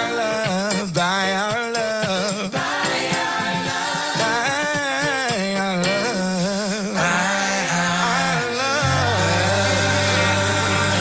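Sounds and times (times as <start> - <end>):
voices singing with vibrato: 0.0 - 11.0
worship song with band: 0.0 - 11.0
steady held low note: 8.8 - 11.0.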